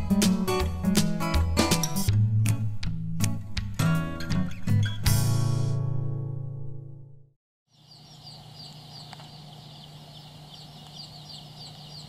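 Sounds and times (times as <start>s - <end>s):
baby chicks peeping: 7.7s - 12.0s
steady low hum: 7.7s - 12.0s.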